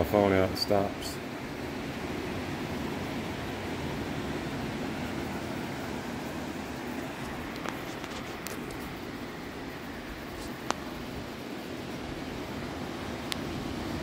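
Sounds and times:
gentle surf: 0.0 - 14.0
sea wind rushing: 0.0 - 14.0
faint ticks: 10.3 - 11.0, 13.2 - 13.5.

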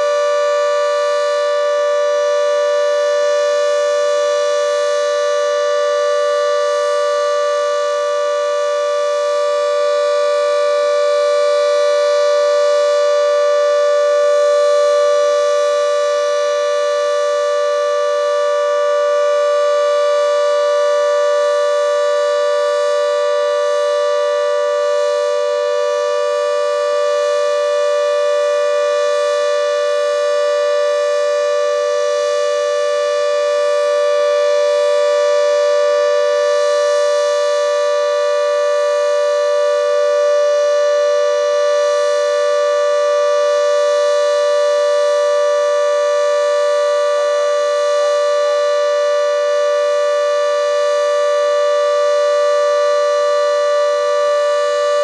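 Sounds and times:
siren holding steady pitch: 0.0 - 55.0.

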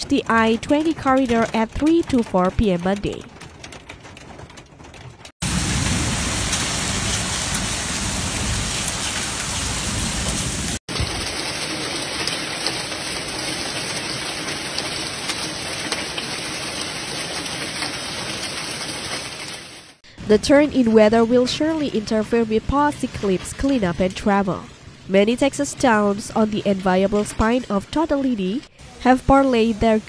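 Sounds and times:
hailstones ticking: 0.0 - 9.5, 10.3 - 19.8
heavy rain and hail: 3.3 - 20.0.

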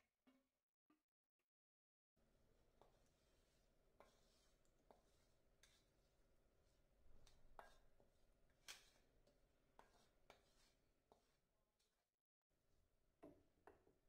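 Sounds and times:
wooden spatula scraping frying pan: 2.8 - 6.0, 8.7 - 9.1, 9.8 - 11.3.

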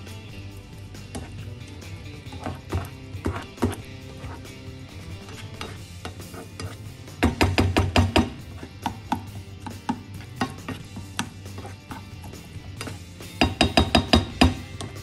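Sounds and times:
spatula scraping frying pan: 0.6 - 7.2, 8.3 - 13.4.

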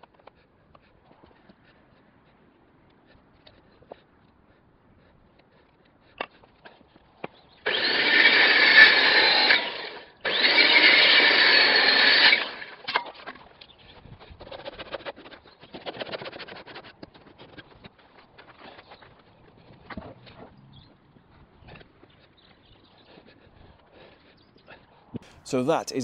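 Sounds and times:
circular saw cutting wood: 7.6 - 13.5
handsaw sawing wood: 7.6 - 13.5, 14.2 - 20.5.

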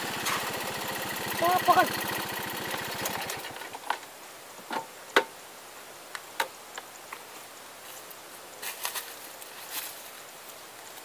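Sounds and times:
motorbike engine cutting off: 0.0 - 4.0
faint outdoor hiss: 0.0 - 11.0.

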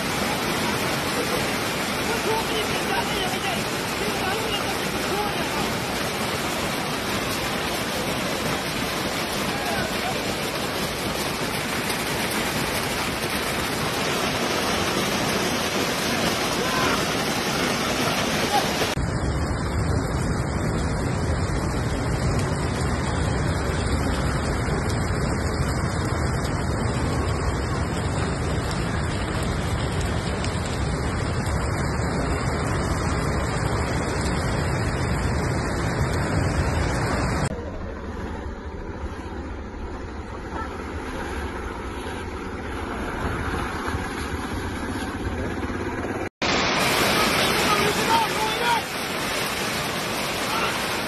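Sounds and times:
tyres splashing through water: 0.0 - 19.0, 40.5 - 51.0
wind and rain rushing: 0.0 - 51.0
low engine and road rumble: 18.9 - 46.4.

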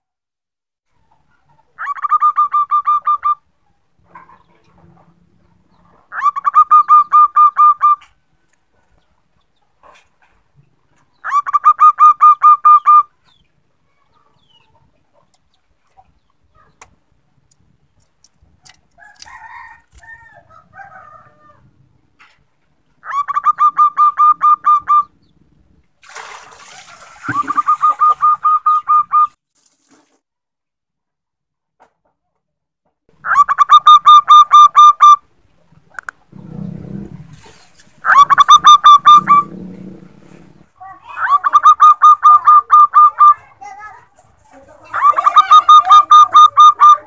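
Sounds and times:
rough bird calls: 0.9 - 17.0, 23.0 - 25.5, 27.2 - 29.4, 33.2 - 43.5
dove cooing: 23.0 - 25.1, 38.0 - 43.6, 44.8 - 47.0.

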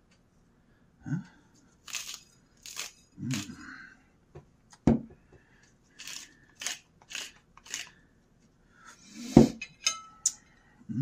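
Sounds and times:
pepper mill grinding: 1.8 - 3.6, 6.0 - 8.0
fork clinking on ceramic plate: 9.6 - 10.4.

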